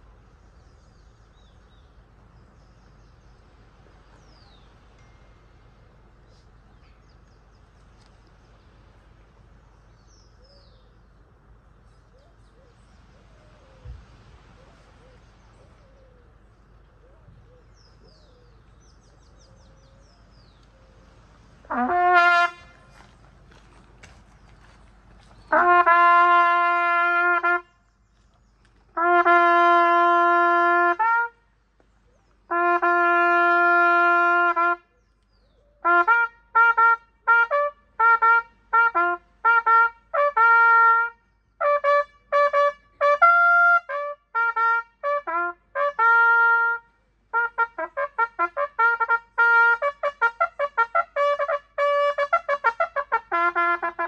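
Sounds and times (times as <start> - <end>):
trumpet playing: 21.6 - 23.0, 25.4 - 27.7, 29.0 - 31.4, 32.5 - 34.9, 35.8 - 54.0.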